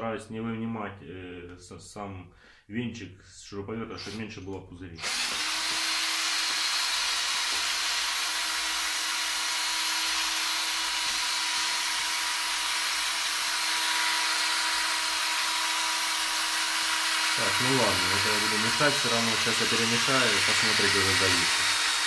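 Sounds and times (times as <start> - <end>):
cordless drill whining: 4.0 - 4.2, 5.0 - 22.0.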